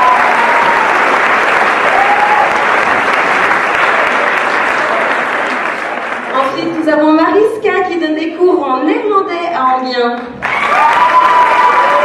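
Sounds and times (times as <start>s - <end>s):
audience applauding: 0.0s - 6.9s, 10.4s - 12.0s.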